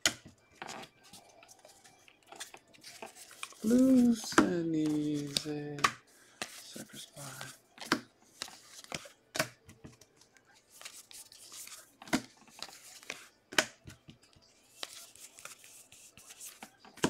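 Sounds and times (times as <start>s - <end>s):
cards rustling against stack: 0.1s - 17.0s
cards snapping: 2.3s - 6.6s, 10.8s - 13.8s.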